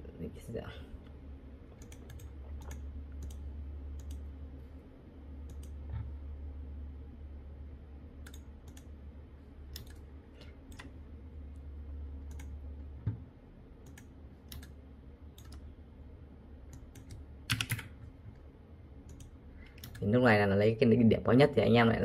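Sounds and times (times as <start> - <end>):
low steady hum: 0.0 - 22.0
computer mouse clicking: 1.7 - 4.3, 5.4 - 6.2, 8.2 - 9.0, 9.7 - 10.9, 12.2 - 13.2, 13.8 - 14.8, 15.4 - 15.7, 16.7 - 18.0, 19.1 - 20.1.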